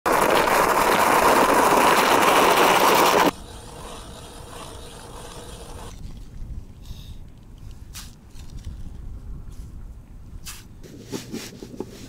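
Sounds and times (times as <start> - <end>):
hand ice auger grinding: 0.1 - 6.0.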